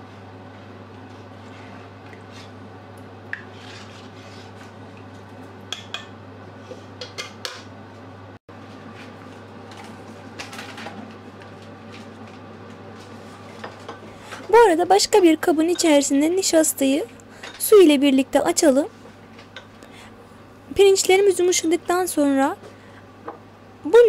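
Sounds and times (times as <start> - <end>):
metal ladle scraping a pot: 3.5 - 4.7.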